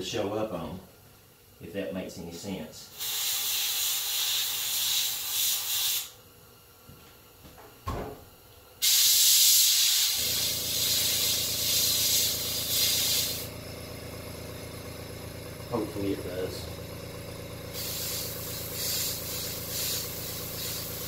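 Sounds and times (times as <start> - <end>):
airbrush spraying hiss: 2.9 - 6.2, 8.8 - 13.5, 17.7 - 21.0
air compressor humming: 2.9 - 21.0.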